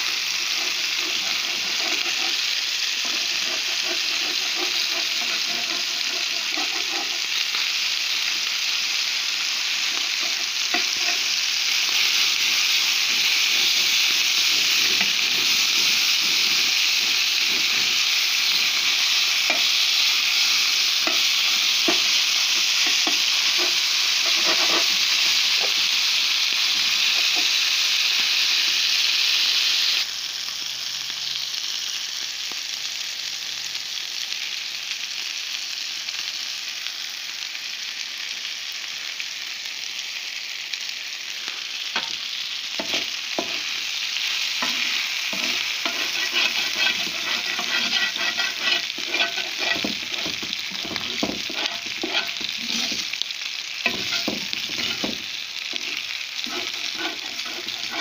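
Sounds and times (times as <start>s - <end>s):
meat sizzling on griddle: 0.0s - 58.0s
utensil scraping and tapping griddle: 0.4s - 7.4s, 9.8s - 11.3s, 12.4s - 19.7s, 21.0s - 25.8s, 42.8s - 43.7s, 44.6s - 53.2s, 53.8s - 58.0s.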